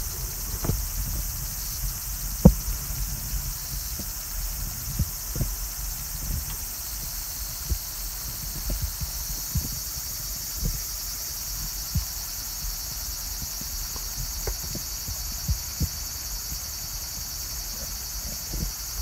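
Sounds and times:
soft low thumps: 0.0s - 10.9s
insects chirring: 0.0s - 19.0s.

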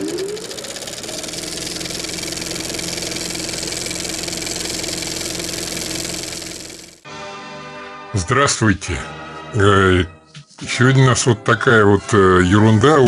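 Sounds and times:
motor machine whining and rattling: 0.0s - 7.0s.

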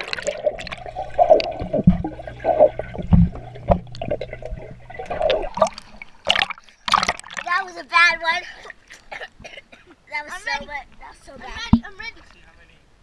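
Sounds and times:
steady low hum: 0.0s - 6.9s
water swirling underwater: 0.0s - 7.5s
water sloshing: 0.0s - 7.8s.

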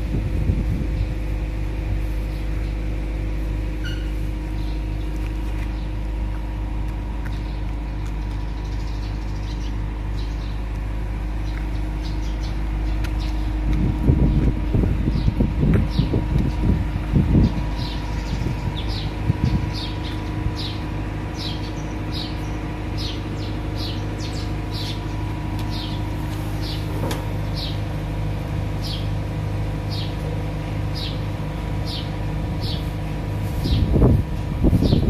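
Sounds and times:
low mechanical hum: 0.0s - 35.0s
bird chirping: 7.2s - 10.7s, 11.4s - 13.6s, 17.4s - 27.8s.

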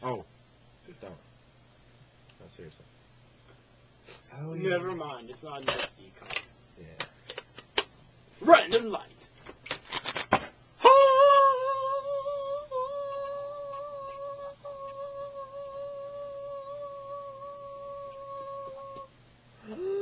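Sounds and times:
man humming one note: 10.8s - 20.0s.

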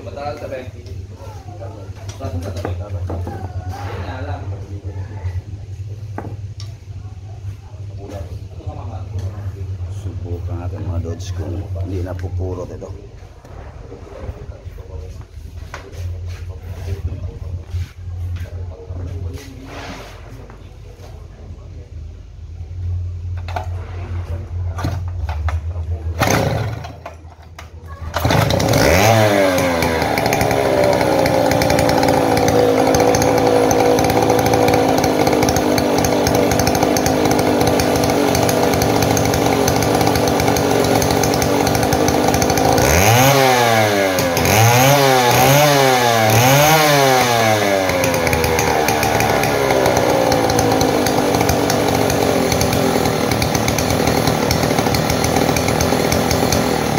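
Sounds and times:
chainsaw starting and revving: 26.1s - 27.2s, 28.1s - 56.9s.

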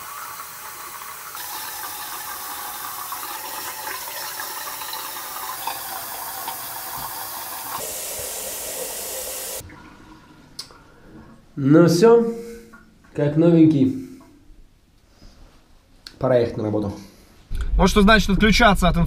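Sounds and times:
tap water running into sink: 0.0s - 9.8s.

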